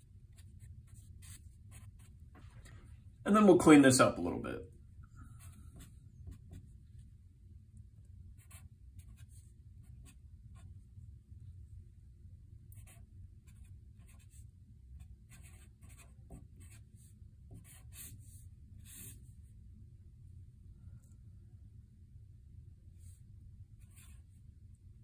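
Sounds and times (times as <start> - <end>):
steady low hum: 0.0 - 25.0
marker scratching on paper: 0.3 - 2.5, 5.4 - 6.8, 8.4 - 10.7, 12.8 - 14.4, 15.0 - 19.2, 23.8 - 24.3.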